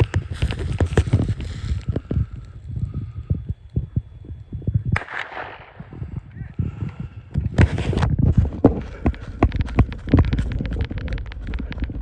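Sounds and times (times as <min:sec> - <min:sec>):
gunshot: 0:05.0 - 0:06.0
heavy running footsteps: 0:06.8 - 0:12.0.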